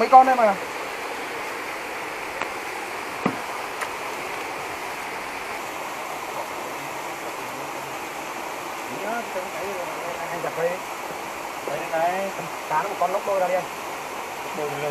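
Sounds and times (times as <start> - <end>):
stream water flowing: 0.0 - 14.9.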